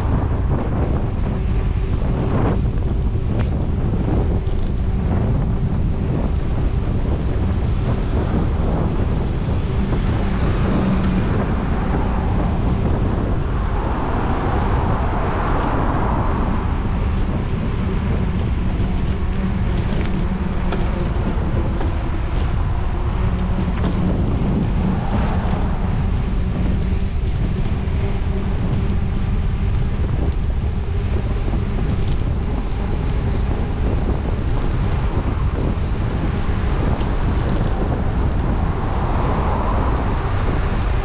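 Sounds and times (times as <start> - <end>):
wind buffeting microphone: 0.0 - 41.0
car passing: 6.3 - 41.0.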